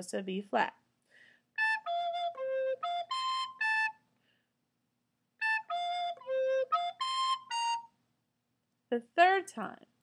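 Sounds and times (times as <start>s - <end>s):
soprano recorder notes: 1.6s - 4.0s, 5.4s - 8.0s.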